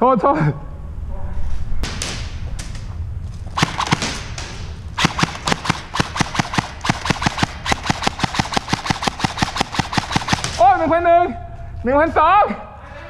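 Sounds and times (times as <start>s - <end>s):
airsoft rifle shots: 3.6s - 10.9s.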